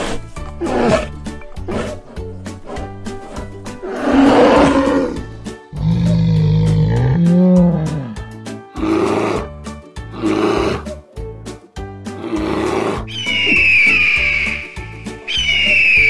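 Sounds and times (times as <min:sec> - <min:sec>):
bear roaring and growling: 0:00.0 - 0:11.0, 0:12.1 - 0:13.1
children's music with steady beat: 0:01.3 - 0:16.0
high whistling tone: 0:13.1 - 0:16.0.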